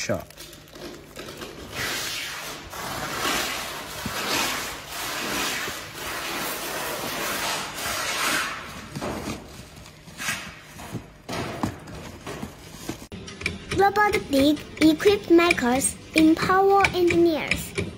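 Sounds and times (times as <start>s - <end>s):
cardboard and packing rustling: 0.0s - 2.0s, 2.6s - 7.6s, 8.3s - 13.1s.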